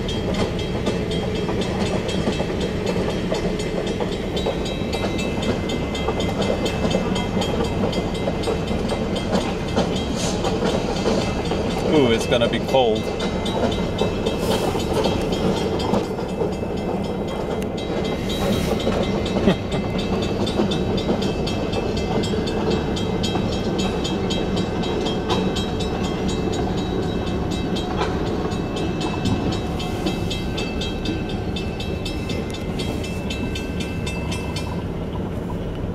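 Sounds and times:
crossing signal bell ringing: 0.0s - 35.8s
train wheels rumbling: 0.0s - 35.9s.

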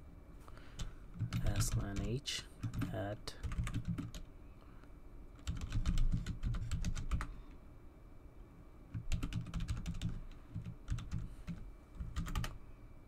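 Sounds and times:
typing on computer keyboard: 0.8s - 4.3s, 5.4s - 7.3s, 8.9s - 12.6s.

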